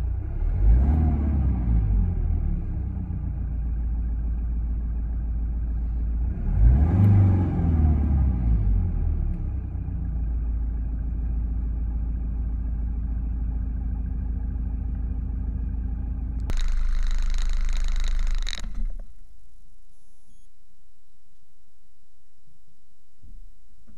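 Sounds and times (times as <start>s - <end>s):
diesel engine idling: 8.9s - 20.2s.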